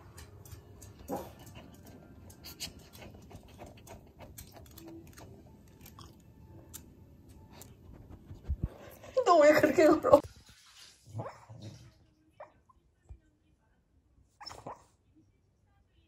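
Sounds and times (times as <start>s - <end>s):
dog claws ticking on tiles: 0.0s - 6.9s.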